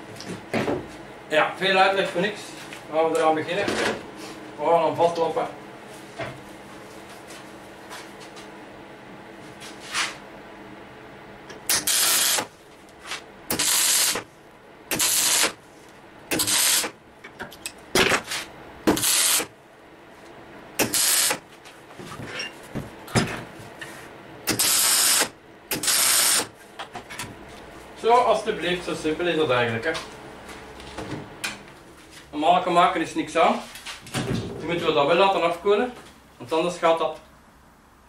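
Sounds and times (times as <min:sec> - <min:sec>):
welding arc bursts: 0:11.7 - 0:12.5, 0:13.5 - 0:14.3, 0:14.9 - 0:15.6, 0:16.3 - 0:17.0, 0:18.9 - 0:19.5, 0:20.8 - 0:21.4, 0:24.5 - 0:26.5.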